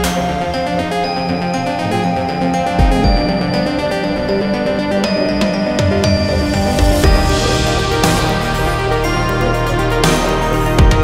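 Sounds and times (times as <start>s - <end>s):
deep bass thump: 2.8s - 3.6s.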